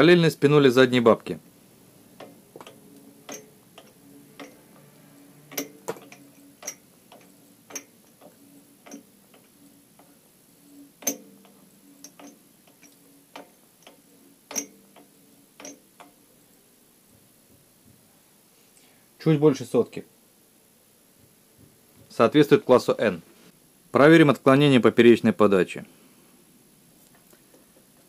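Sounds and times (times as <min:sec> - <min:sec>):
metallic clicks of lathe carriage: 0:02.2 - 0:04.9, 0:05.5 - 0:10.1, 0:11.0 - 0:16.2.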